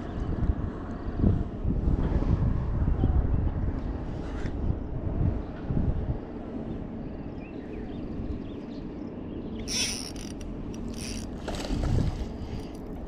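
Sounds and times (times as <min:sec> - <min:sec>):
wind on microphone: 0:00.0 - 0:08.6, 0:11.0 - 0:13.0
fishing reel gears whirring: 0:09.6 - 0:11.4.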